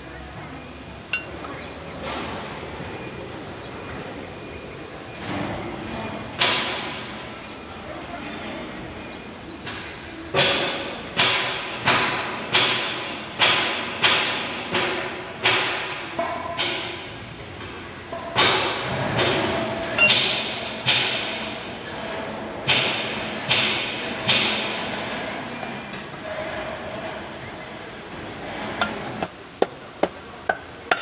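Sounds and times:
hammer striking metal: 0:01.1 - 0:01.4, 0:18.1 - 0:21.5, 0:28.8 - 0:31.0.

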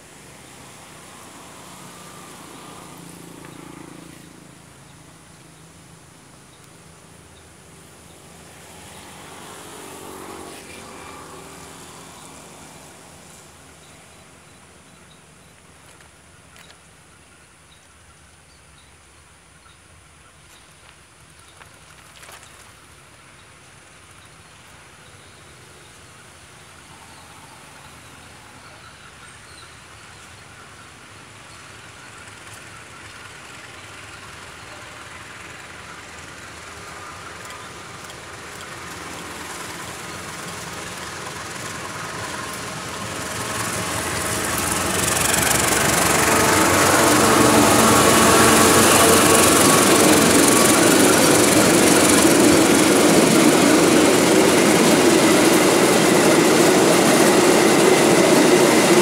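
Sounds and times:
diesel locomotive engine: 0:00.0 - 0:59.0
wagons rolling over rails: 0:31.7 - 0:59.0.

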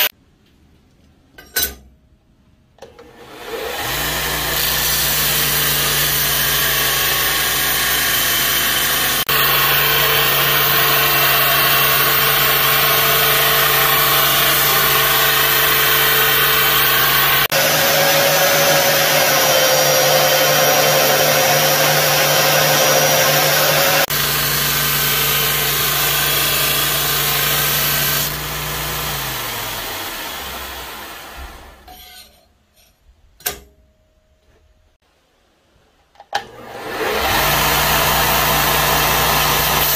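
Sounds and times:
belt grinder grinding steel: 0:03.4 - 0:32.4, 0:36.8 - 0:39.9.

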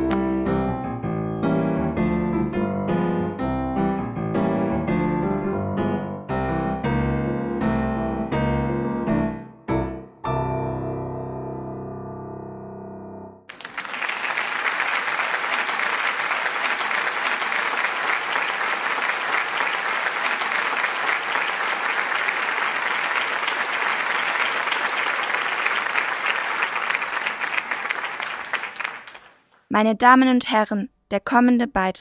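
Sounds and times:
piano music: 0:00.0 - 0:13.5
applause: 0:13.5 - 0:29.5.

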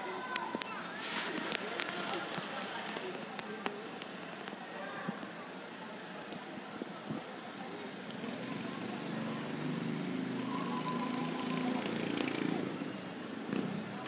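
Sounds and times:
vehicle engine approaching: 0:07.9 - 0:14.0.

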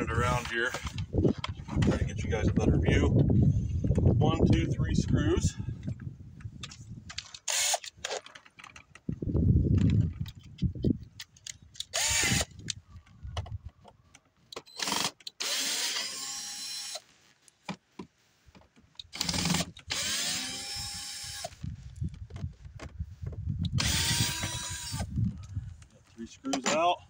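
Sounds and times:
cordless drill motor whine: 0:07.5 - 0:07.8, 0:11.9 - 0:12.5, 0:14.7 - 0:17.0, 0:19.2 - 0:21.6, 0:23.7 - 0:25.1.

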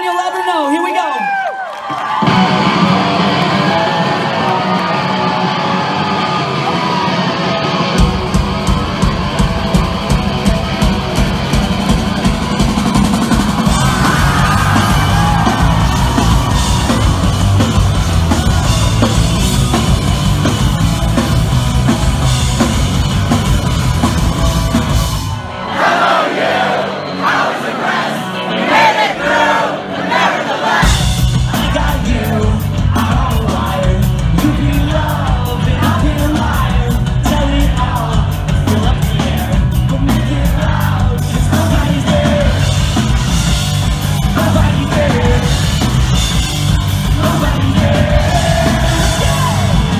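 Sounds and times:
people yelling: 0:00.0 - 0:07.8, 0:13.3 - 0:22.7, 0:23.9 - 0:30.9, 0:47.2 - 0:49.9
drums: 0:00.0 - 0:49.9
pop-punk band playing live: 0:02.0 - 0:49.9.

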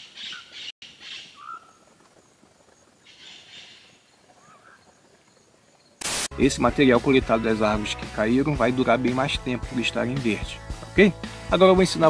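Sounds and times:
insects chirping: 0:00.9 - 0:06.3.

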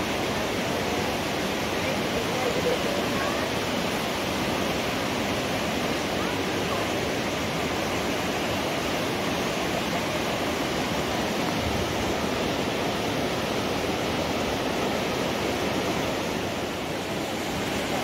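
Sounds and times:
river rushing over stones: 0:00.0 - 0:18.0.

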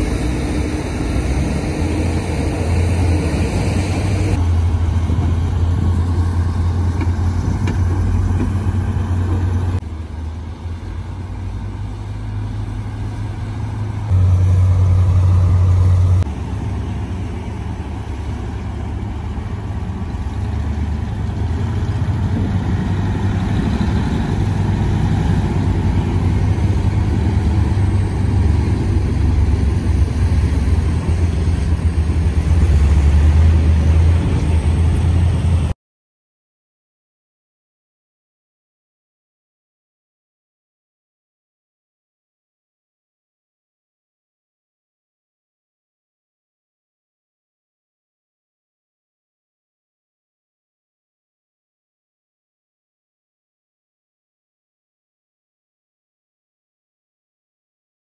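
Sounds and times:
truck diesel engine droning: 0:00.0 - 0:35.8.

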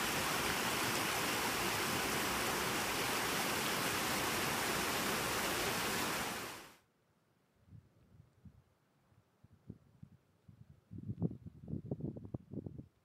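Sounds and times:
creek water rushing: 0:00.0 - 0:06.7.

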